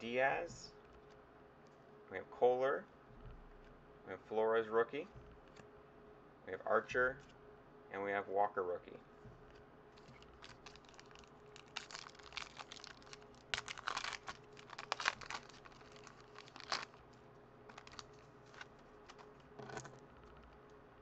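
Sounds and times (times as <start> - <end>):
foil wrapper crinkling and tearing: 10.0 - 20.5.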